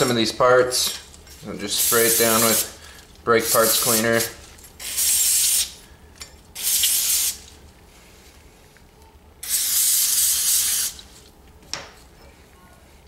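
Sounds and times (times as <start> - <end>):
aerosol can spraying: 1.8 - 2.8, 3.5 - 5.8, 6.6 - 7.5, 9.4 - 11.1.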